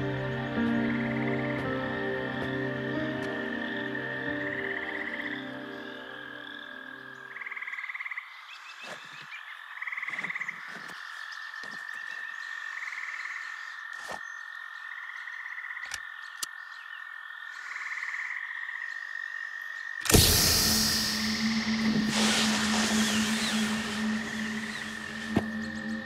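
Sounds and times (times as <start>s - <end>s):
steady high-pitched tone: 20.1s - 26.0s.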